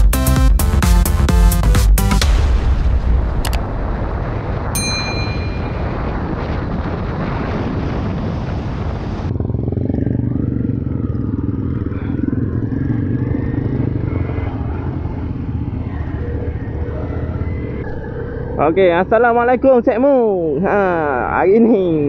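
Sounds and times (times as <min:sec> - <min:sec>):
wind rush: 0:02.3 - 0:09.5
motorcycle engine: 0:09.0 - 0:21.5.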